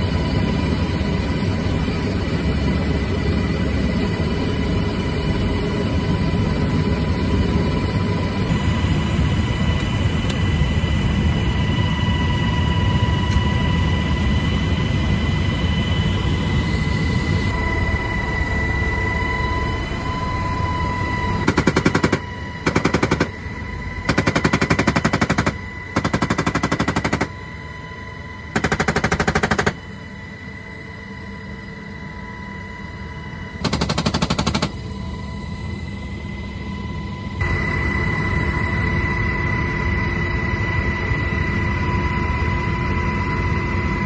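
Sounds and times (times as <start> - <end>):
helicopter turbine and rotor: 0.0 - 44.0
high turbine whine: 0.0 - 44.0
machine gun automatic fire: 21.4 - 23.3, 24.1 - 27.3, 28.6 - 29.8, 33.6 - 34.8.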